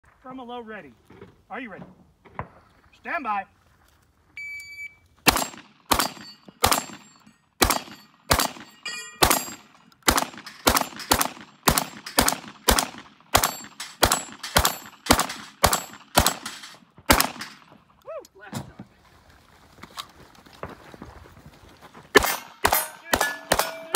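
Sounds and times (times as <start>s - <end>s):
steel targets ringing: 5.3s - 9.8s, 13.4s - 16.8s, 22.2s - 23.9s
rapid gunshots: 5.3s - 17.7s, 22.2s - 23.9s.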